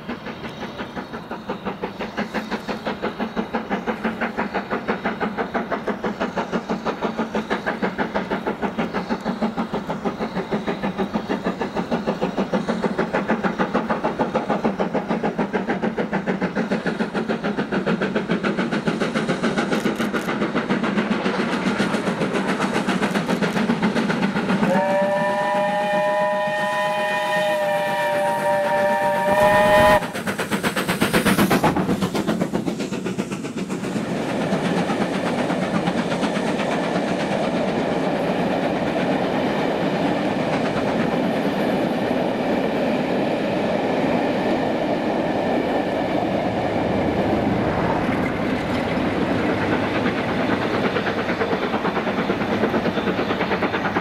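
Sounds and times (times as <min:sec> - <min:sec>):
train wheels rolling on rails: 0:00.0 - 0:54.0
steam locomotive whistle: 0:24.6 - 0:30.2.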